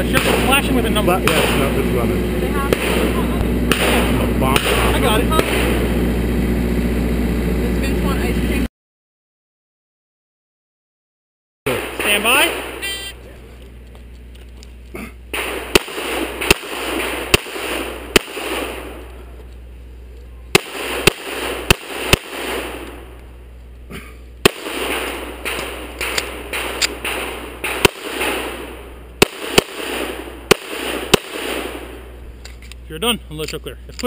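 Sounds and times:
pistol shots: 0.0s - 1.9s, 2.6s - 6.0s, 11.7s - 12.9s, 15.3s - 19.2s, 20.5s - 23.2s, 24.4s - 32.2s.

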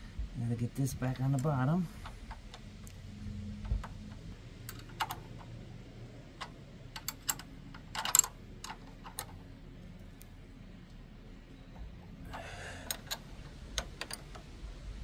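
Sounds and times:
hand tools clicking and clinking: 3.6s - 5.6s, 6.4s - 9.4s, 12.3s - 14.6s.

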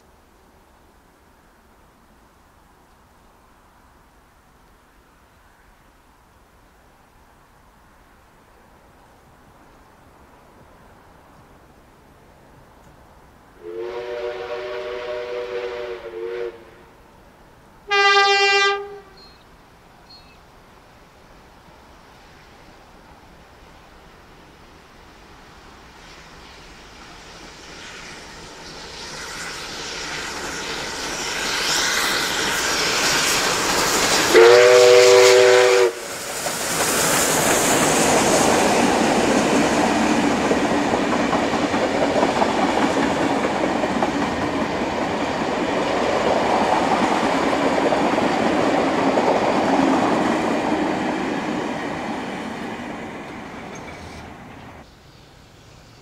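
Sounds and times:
train rumbling past: 7.1s - 56.0s
train signal horn blast: 13.6s - 17.0s, 17.9s - 19.3s, 34.3s - 36.0s.

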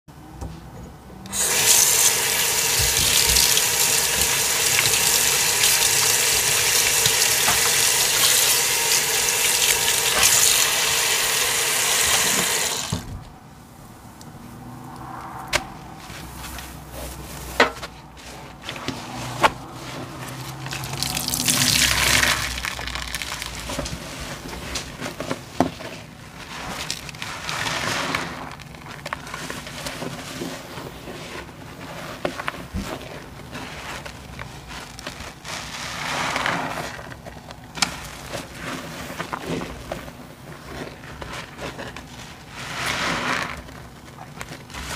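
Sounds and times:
faucet running into metal sink: 1.3s - 13.0s
sponge squishing in suds: 1.3s - 13.1s, 15.5s - 44.9s.

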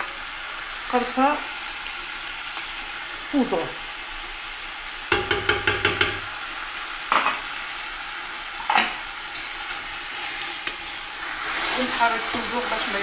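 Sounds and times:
chicken and onion sizzling: 0.0s - 13.0s
spoon scraping and knocking pot: 5.1s - 6.3s.

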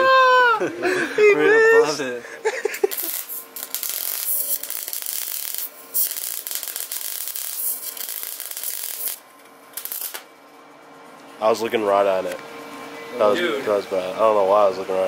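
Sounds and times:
welder arc crackling: 2.8s - 10.3s.

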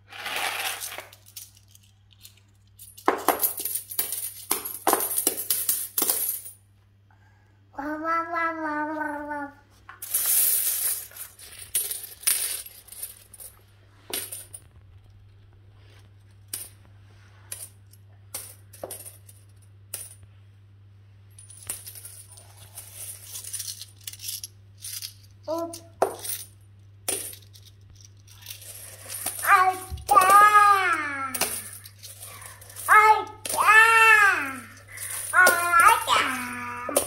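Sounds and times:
coins clinking and jingling: 0.2s - 6.6s, 10.0s - 13.6s, 21.4s - 30.6s, 31.3s - 37.0s.

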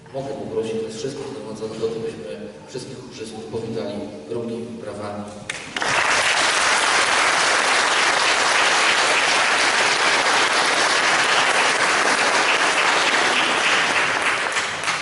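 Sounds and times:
audience applauding: 5.5s - 15.0s.

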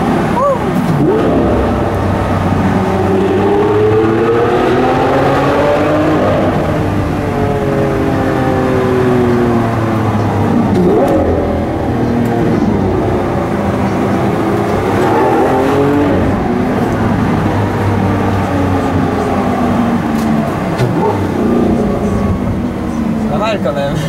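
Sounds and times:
car engine revving from inside cabin: 0.9s - 9.0s.

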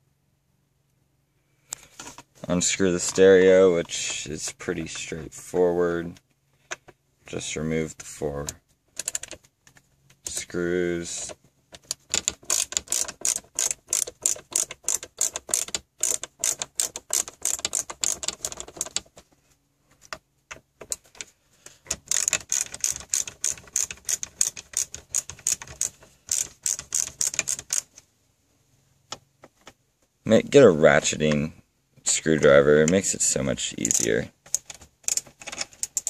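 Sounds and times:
ratcheting screwdriver clicking: 11.2s - 19.1s, 21.9s - 28.0s, 33.8s - 36.0s.

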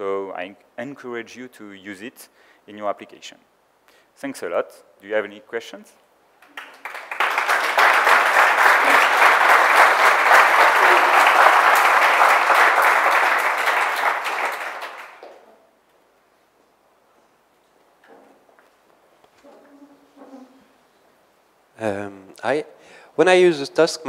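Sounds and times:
audience applauding: 6.4s - 15.4s.

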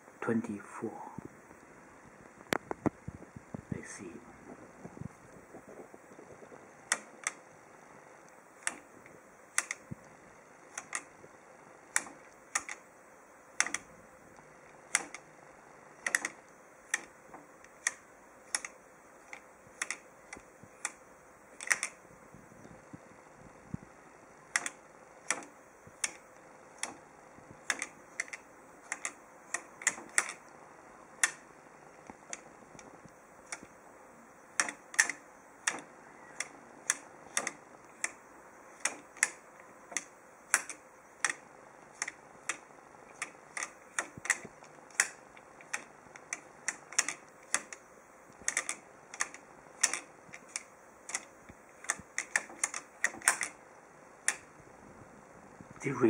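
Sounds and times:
abacus beads clicking: 16.0s - 21.0s, 21.6s - 22.0s, 27.6s - 30.6s, 34.4s - 53.6s.

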